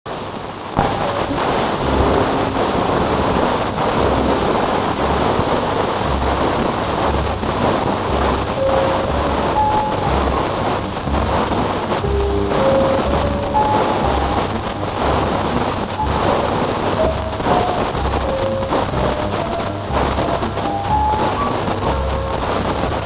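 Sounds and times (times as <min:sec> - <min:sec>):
film soundtrack hiss and crackle: 0:00.1 - 0:23.0
faint musical notes: 0:00.7 - 0:23.0
low pulsing: 0:00.8 - 0:23.0.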